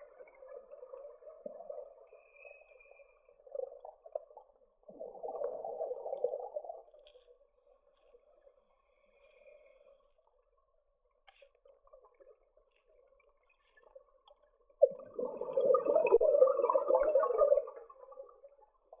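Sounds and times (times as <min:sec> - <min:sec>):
faint underwater crackle: 0:00.0 - 0:19.0
exhaled breath bubbling underwater: 0:14.9 - 0:18.2.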